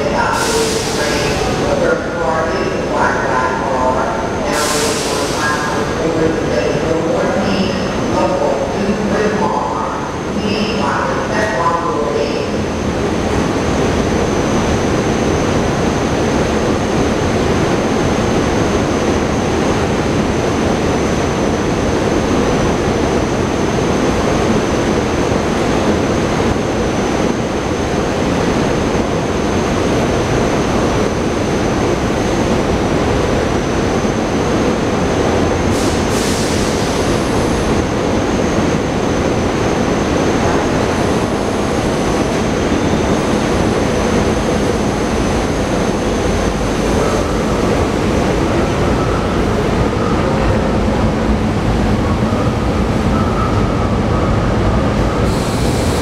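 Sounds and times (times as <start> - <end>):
electric train rumble: 0.0 - 56.0.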